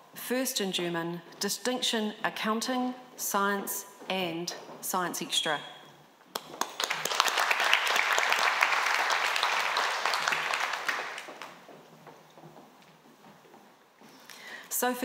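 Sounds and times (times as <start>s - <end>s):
audience applauding: 6.4s - 11.6s.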